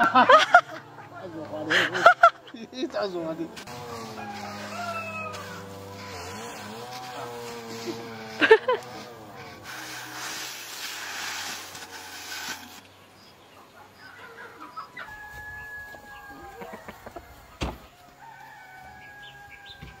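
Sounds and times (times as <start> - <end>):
rice raking rustling hiss: 1.7 - 13.3, 15.1 - 20.0
rooster crowing: 3.7 - 7.7, 14.1 - 20.0.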